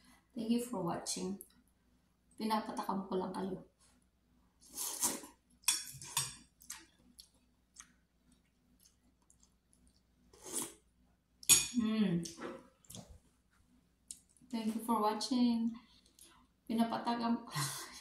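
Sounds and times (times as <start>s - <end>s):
person slurping noodles: 4.6s - 5.3s, 10.4s - 10.8s
wet mouth clicks and chewing: 6.6s - 10.1s.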